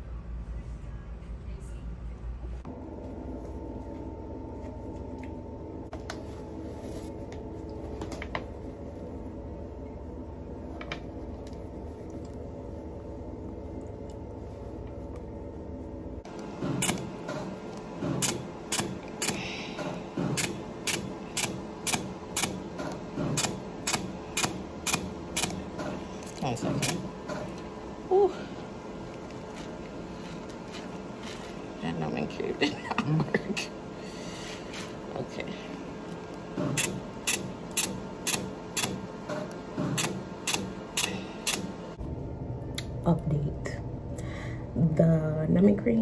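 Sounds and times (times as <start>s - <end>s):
laser device clicking: 40.0s - 41.7s.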